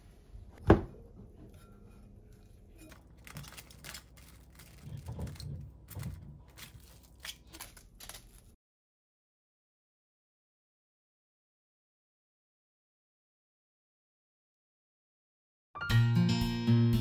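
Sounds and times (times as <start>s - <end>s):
cling wrap crinkling: 2.7s - 8.6s.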